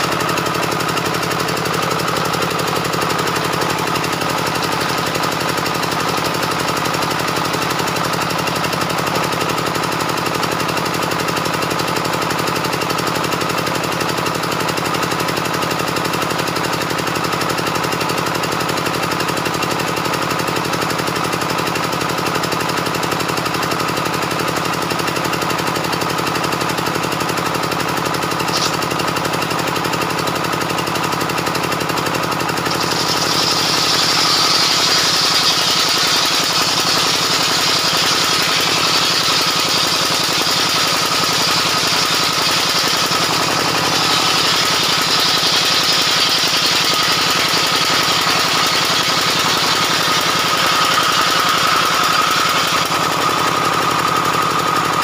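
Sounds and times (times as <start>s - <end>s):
circular saw cutting wood: 0.0s - 11.0s, 28.1s - 55.0s
saw drive engine running: 0.0s - 55.0s.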